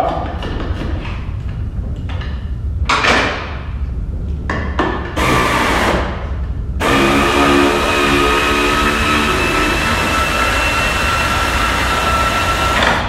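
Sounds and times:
impact wrench bursts: 5.2s - 6.2s, 6.8s - 13.0s.

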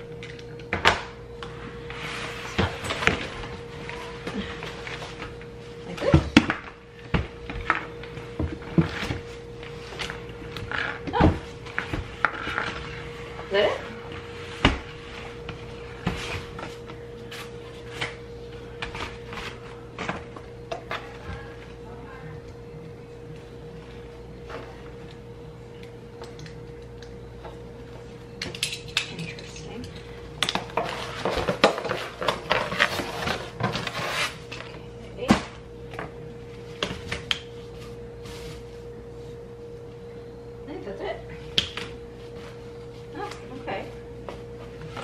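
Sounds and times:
faint steady hum: 0.0s - 45.0s
cardboard rustling and scraping: 30.8s - 34.5s.

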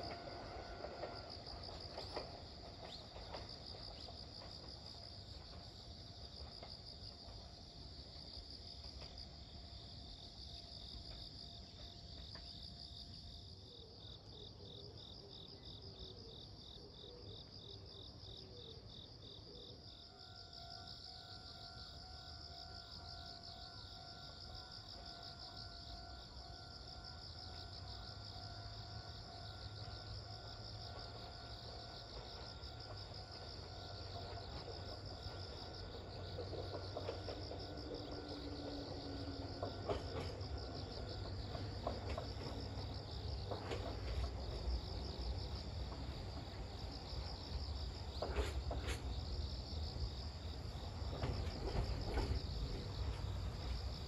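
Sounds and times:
train wheel clacks: 0.0s - 9.4s, 29.0s - 50.0s, 50.6s - 54.0s
electric train rumble: 0.0s - 54.0s
insects chirring: 0.0s - 54.0s.

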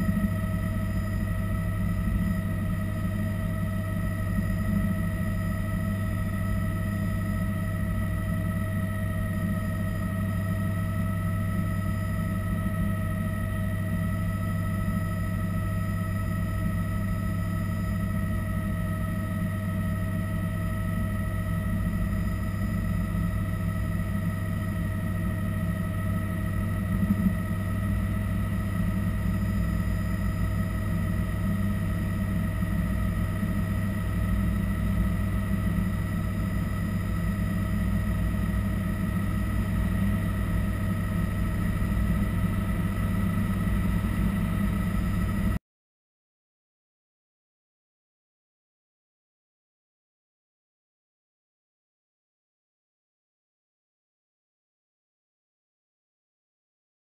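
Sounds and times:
helicopter engine and rotor drone: 0.0s - 45.6s
steady whining tones: 0.0s - 45.6s.

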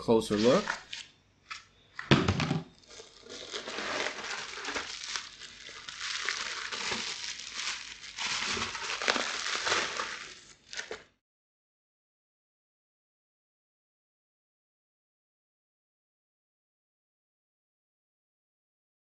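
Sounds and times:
bubble wrap crinkling: 2.8s - 11.1s.

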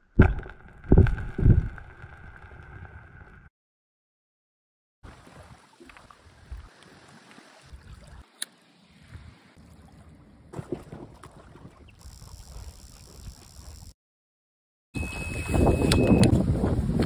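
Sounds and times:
wind buffeting microphone: 15.0s - 17.0s.

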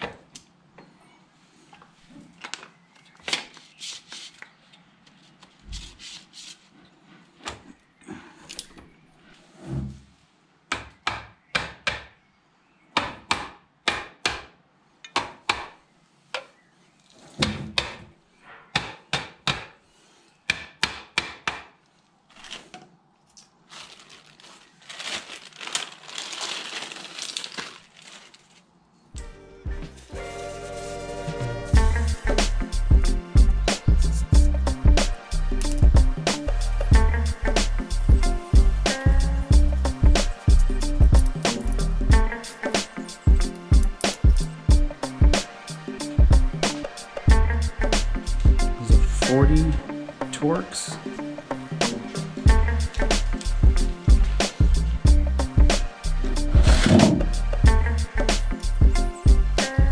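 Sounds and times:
scraping rustle: 22.3s - 22.8s, 23.6s - 28.7s.

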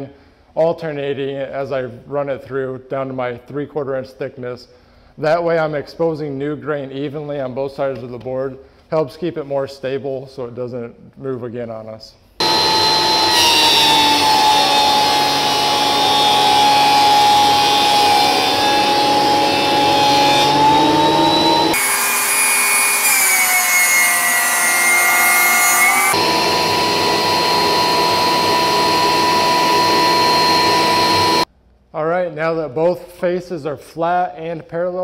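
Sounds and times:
thickness planer motor whine: 12.4s - 31.5s.

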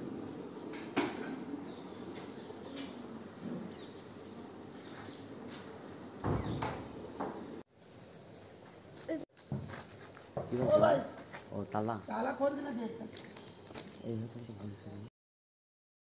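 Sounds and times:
insects chirring: 0.0s - 15.1s
knocks and thumps: 6.2s - 7.6s, 9.5s - 10.9s.

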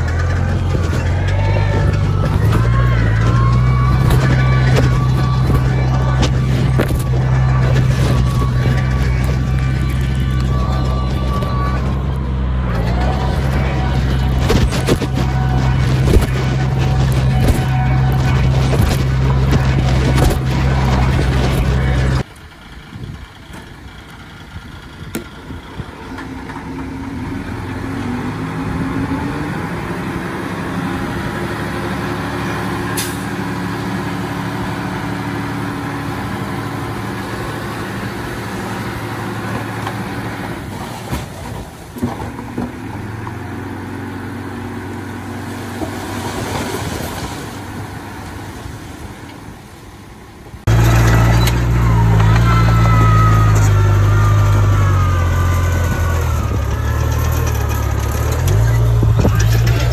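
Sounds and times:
background music: 0.0s - 22.2s
bulldozer diesel engine running: 0.0s - 59.9s.

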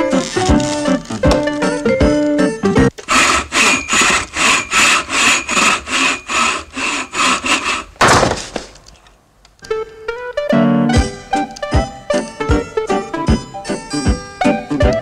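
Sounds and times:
hand saw cutting wood: 3.0s - 8.0s.

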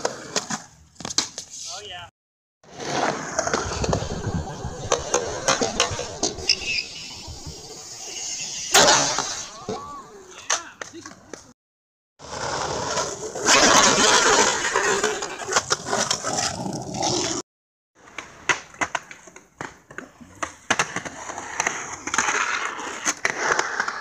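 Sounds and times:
skateboard wheels rolling on concrete: 0.0s - 2.0s, 2.6s - 11.5s, 12.2s - 17.4s, 18.0s - 24.0s
skateboard clacks: 18.0s - 24.0s.

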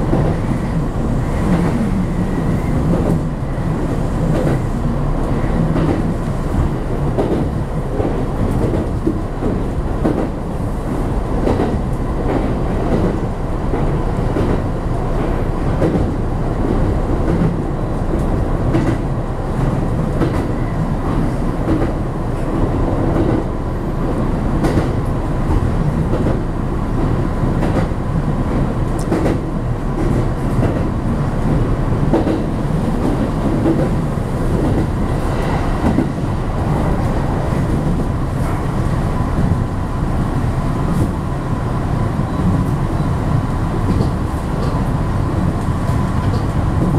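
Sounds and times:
train wheels rumbling: 0.0s - 46.9s.

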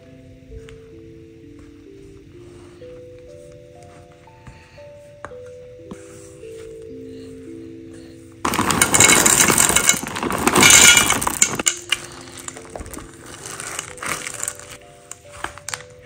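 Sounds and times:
chocolate chips poured into metal bowl: 8.5s - 12.7s.

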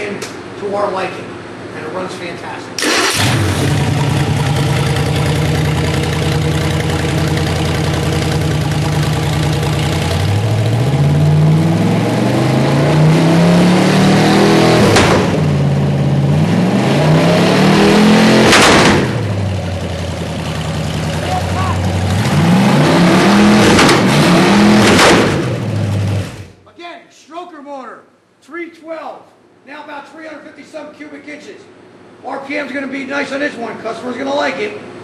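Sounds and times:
engine idling and revving: 2.8s - 26.6s.

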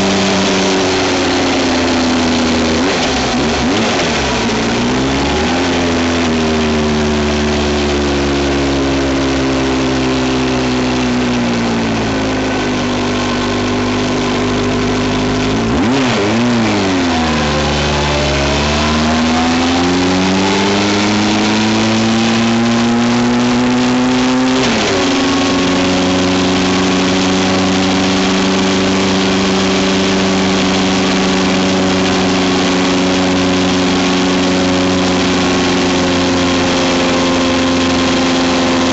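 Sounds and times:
vehicle engine running: 0.0s - 38.9s.

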